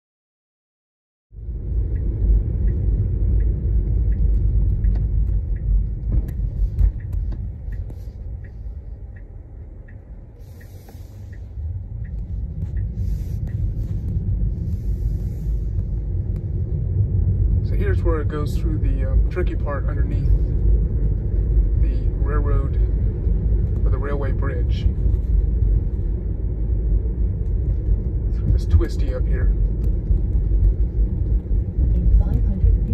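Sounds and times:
turn signal ticking: 1.4 - 32.9
tyres rumbling on wet road: 1.5 - 9.2, 10.4 - 32.9.

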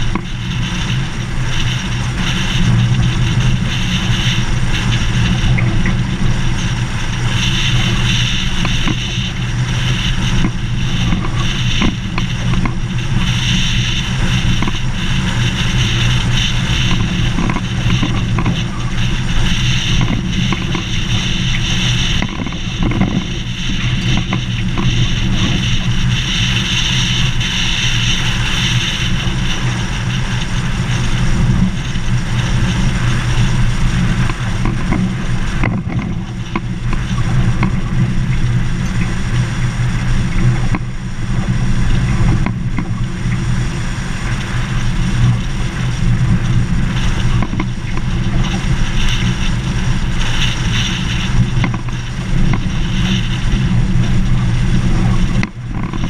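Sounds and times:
vehicle driving on gravel: 0.0 - 56.0
hiss: 36.2 - 55.7.

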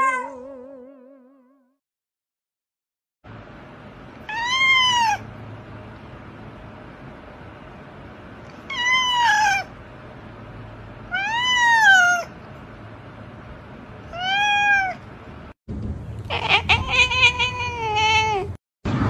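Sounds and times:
cat meowing: 0.0 - 0.8, 4.2 - 5.2, 8.6 - 9.7, 11.1 - 12.3, 14.1 - 15.0, 16.3 - 18.6.

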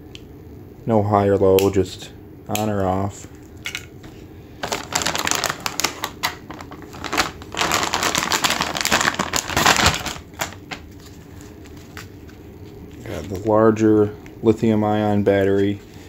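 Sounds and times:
plastic zip bag crinkling: 4.6 - 12.3.

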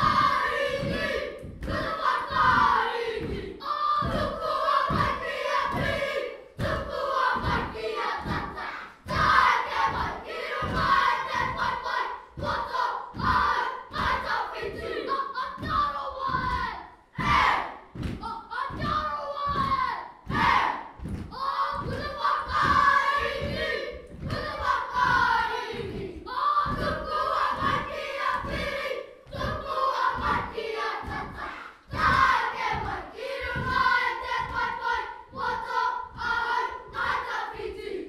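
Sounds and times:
children chanting in unison: 0.0 - 38.0
foot stamps: 17.2 - 25.3.

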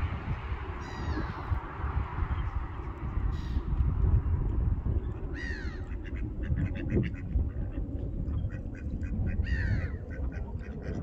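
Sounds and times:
steady low rumble: 0.0 - 11.0
ducks calling: 0.8 - 1.6, 5.3 - 11.0.

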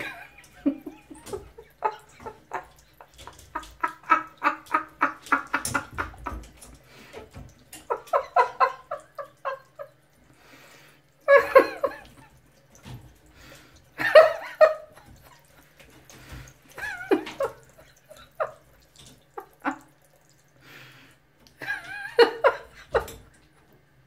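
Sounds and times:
person laughing: 0.0 - 6.4, 11.3 - 12.3.

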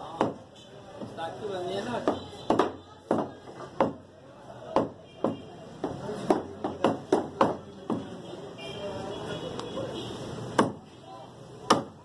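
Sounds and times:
cleaver chopping meat on wood: 0.0 - 1.2, 2.0 - 4.1, 4.7 - 8.1, 10.5 - 10.8, 11.6 - 12.0.

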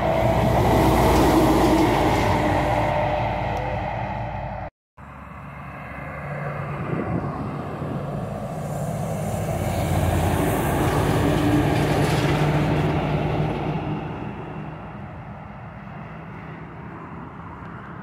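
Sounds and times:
truck diesel engine drone: 0.0 - 18.0
tyre and wind noise: 6.7 - 15.4.

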